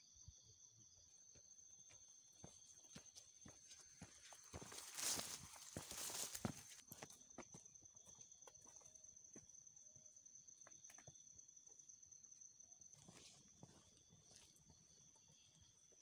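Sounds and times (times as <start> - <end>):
insect drone: 0.0 - 16.0
footsteps on dirt trail: 1.3 - 9.5, 12.9 - 16.0.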